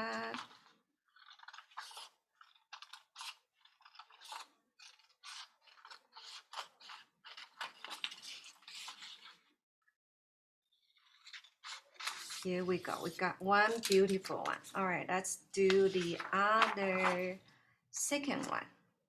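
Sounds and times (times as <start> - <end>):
scissors snipping paper: 0.0 - 9.4, 13.6 - 14.8.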